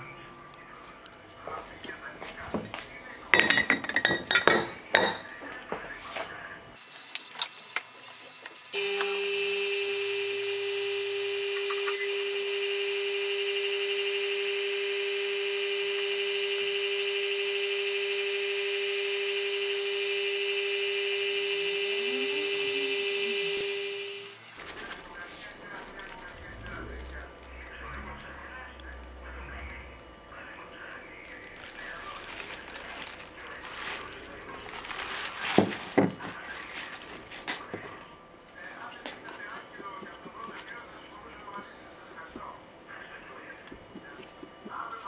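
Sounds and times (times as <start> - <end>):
glass clinks: 3.4 - 5.2
vacuum pump humming: 8.6 - 36.2.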